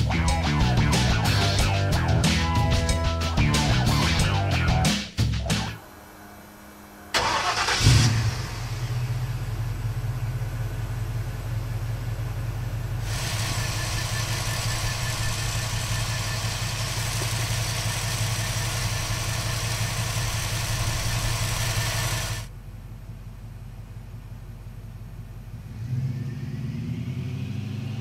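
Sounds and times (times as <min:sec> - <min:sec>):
engine idling: 0:00.0 - 0:25.8
engine cranking and starting: 0:07.1 - 0:09.2, 0:13.0 - 0:22.5.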